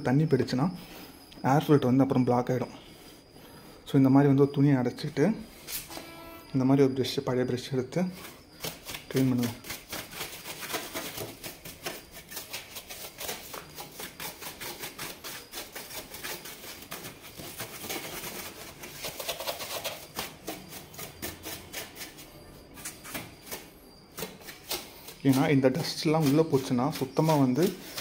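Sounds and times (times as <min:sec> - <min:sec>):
brush scrubbing plastic: 0:08.1 - 0:28.0.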